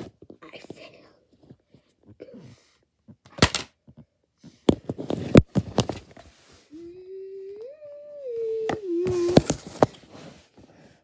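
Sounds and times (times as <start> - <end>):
person humming a tune: 6.7 - 9.7.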